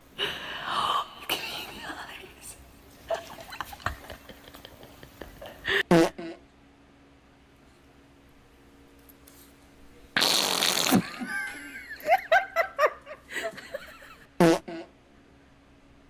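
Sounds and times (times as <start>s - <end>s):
person laughing: 3.1s - 6.4s, 10.8s - 14.9s
loud airy fart: 5.9s - 6.5s, 10.2s - 11.6s, 14.4s - 15.0s.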